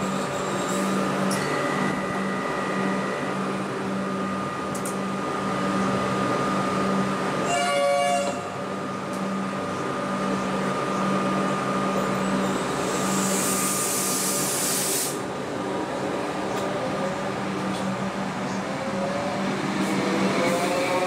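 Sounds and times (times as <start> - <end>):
electric train humming: 0.0 - 21.0
pneumatic air hiss: 12.9 - 15.2.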